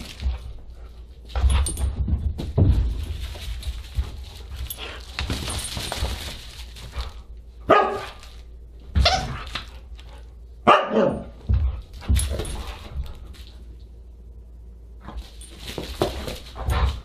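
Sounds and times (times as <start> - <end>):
dog barking: 7.7 - 8.2, 10.6 - 11.3.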